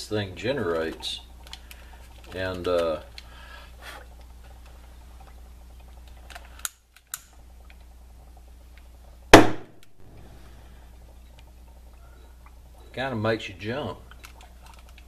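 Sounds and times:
sharp loud bang: 0:09.4 - 0:09.8.

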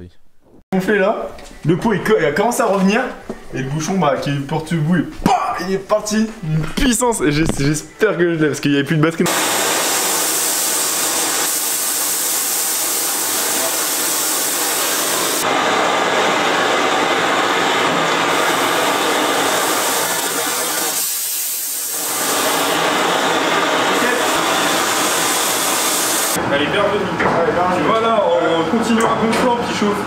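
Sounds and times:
gas torch hissing: 0:09.3 - 0:26.4.

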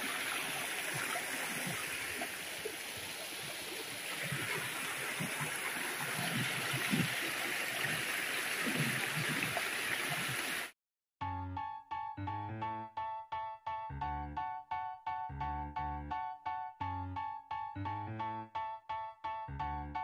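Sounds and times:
river water rushing over rocks: 0:00.0 - 0:10.7.

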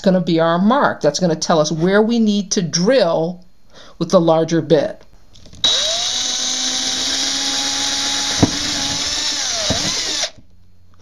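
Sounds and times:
power drill boring through wood: 0:05.4 - 0:10.5.

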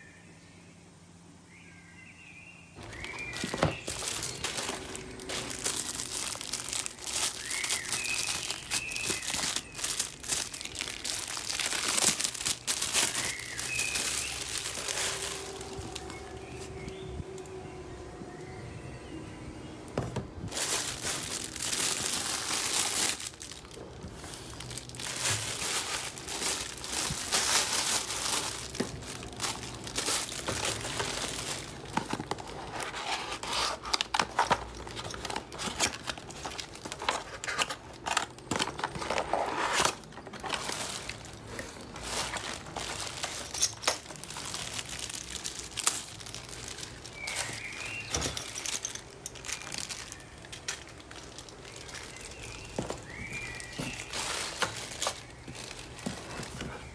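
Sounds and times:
cardboard flaps rustling and scraping: 0:02.8 - 0:17.0, 0:20.0 - 0:44.7, 0:52.6 - 0:56.9
cellophane crinkling: 0:02.8 - 0:17.5, 0:19.9 - 0:56.9.

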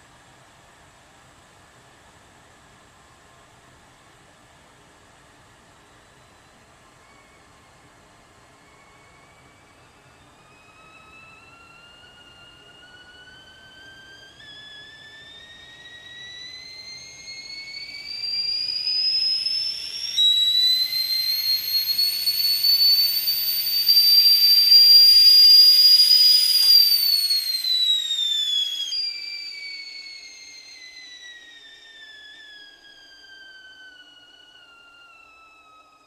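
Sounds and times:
kettle whistling: 0:05.7 - 0:36.0
steam hissing: 0:11.7 - 0:35.5.

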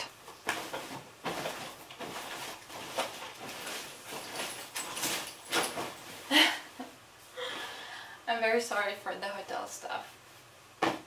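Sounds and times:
clothes and bedding rustling: 0:00.0 - 0:07.8.

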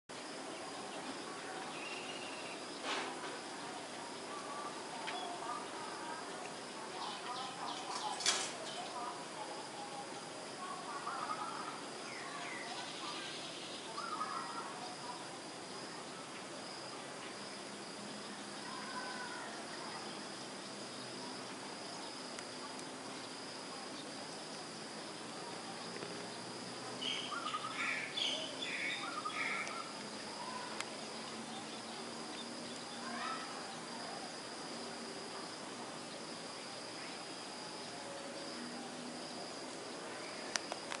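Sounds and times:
insects chirring: 0:00.1 - 0:41.0
bird calling: 0:27.0 - 0:31.8.

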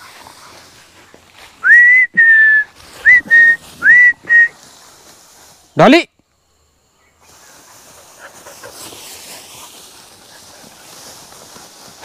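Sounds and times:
person whistling for dogs: 0:01.6 - 0:04.6.

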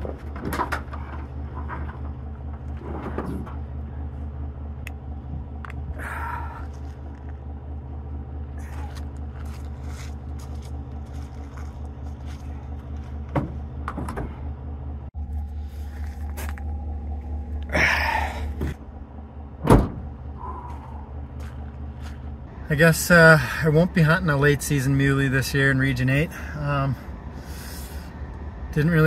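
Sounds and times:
pickup engine idling: 0:00.0 - 0:29.0
tailgate slamming shut: 0:19.6 - 0:20.2.

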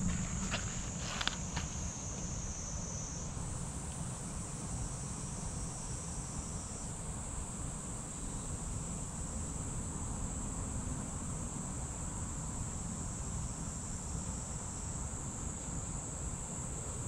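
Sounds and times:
low steady rumble: 0:00.0 - 0:03.7
high-pitched insect chorus: 0:00.0 - 0:17.0.

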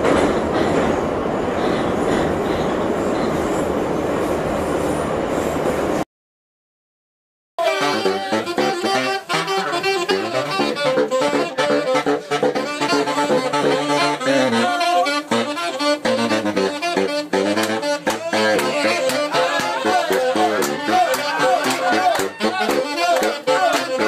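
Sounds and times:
baritone saxophone playing: 0:07.6 - 0:24.0
saxophone playing: 0:07.6 - 0:24.0.

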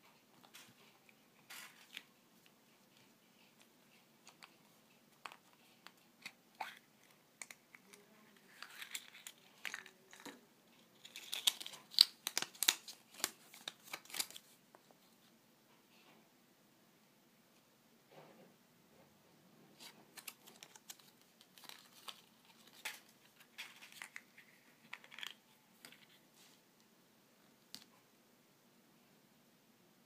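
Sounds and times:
paper crinkling and rustling: 0:00.4 - 0:02.1, 0:07.8 - 0:14.6, 0:19.8 - 0:26.2.

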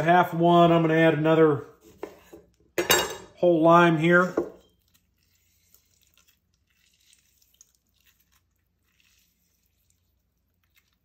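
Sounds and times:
juice dripping into metal bowl: 0:04.7 - 0:11.0.

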